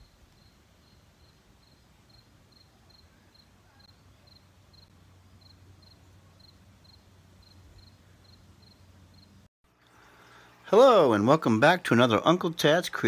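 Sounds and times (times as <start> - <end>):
cricket chirping: 0.0 - 9.4.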